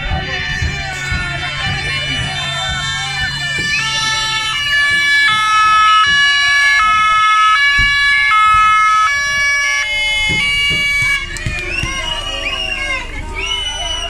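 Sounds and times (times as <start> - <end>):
two-tone police siren: 0.0 - 14.0.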